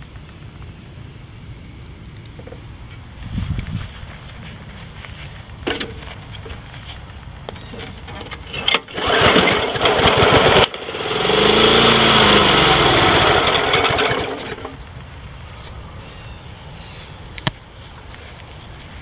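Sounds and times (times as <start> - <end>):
mower engine pull-start: 7.6 - 14.8
mower engine surging and dying: 7.6 - 15.0.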